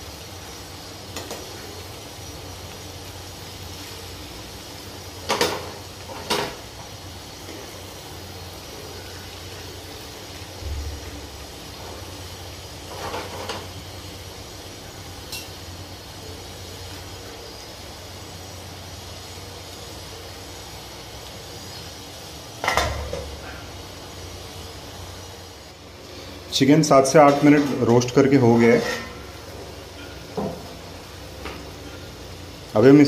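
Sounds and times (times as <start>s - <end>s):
steady background hum: 0.0s - 33.0s
spatula scraping a pan: 12.8s - 13.8s, 28.5s - 30.4s.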